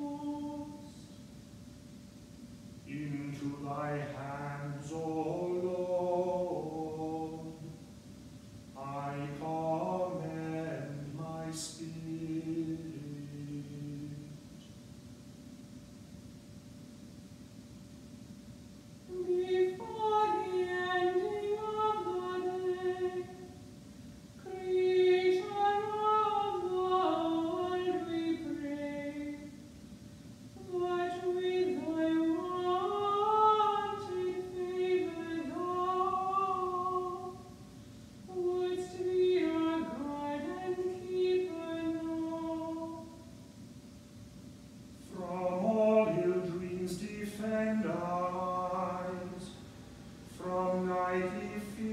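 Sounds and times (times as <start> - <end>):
lower voice chanting: 0.0 - 1.2, 2.8 - 7.9, 8.8 - 14.7, 19.1 - 23.7, 24.4 - 29.7, 30.6 - 43.4, 45.0 - 51.9
woman chanting plainsong: 50.3 - 51.9.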